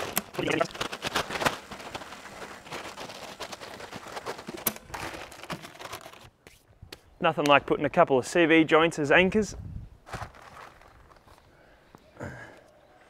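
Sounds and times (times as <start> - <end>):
plastic tarp rustling: 0.0 - 6.3, 10.0 - 11.4.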